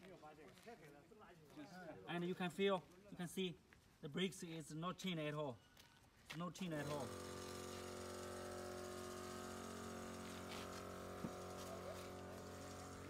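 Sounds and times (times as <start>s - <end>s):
machinery humming: 6.9s - 13.0s.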